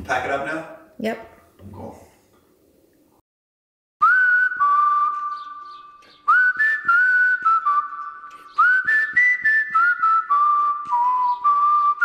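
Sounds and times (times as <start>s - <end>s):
whistled tune: 4.0s - 12.0s.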